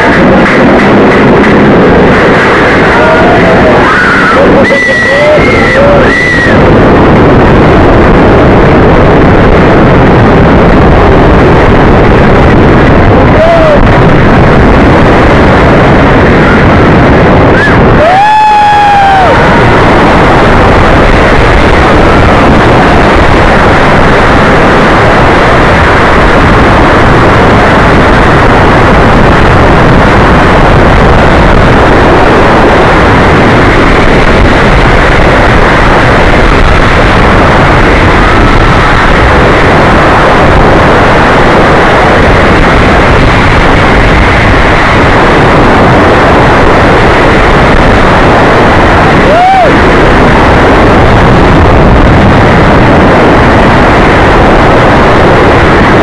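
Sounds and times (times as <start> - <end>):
roller coaster rumbling on track: 0.0 - 56.0
wind blasting microphone: 0.0 - 56.0.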